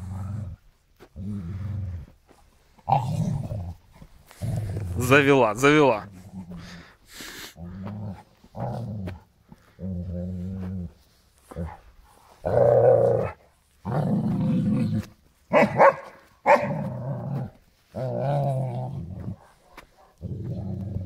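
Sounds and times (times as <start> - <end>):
dog growling: 0.0 - 2.2, 2.8 - 5.1, 6.0 - 11.8, 12.4 - 15.1, 16.5 - 21.0
dog barking sharply: 15.5 - 16.8.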